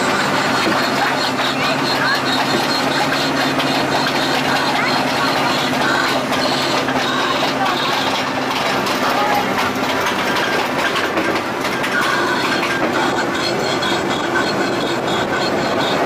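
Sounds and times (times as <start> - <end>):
train wheels rattling on rails: 0.0 - 16.0.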